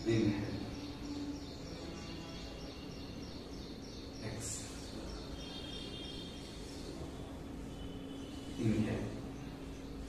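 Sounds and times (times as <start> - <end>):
high chirps: 0.0 - 7.0
low steady hum: 0.0 - 10.0.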